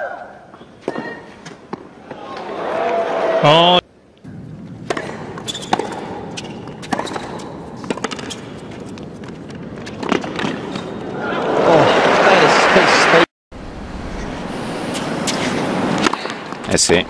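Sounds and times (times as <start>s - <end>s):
crowd cheering and applause: 2.0s - 3.7s, 11.1s - 13.3s
tennis ball struck by rackets: 4.8s - 10.9s.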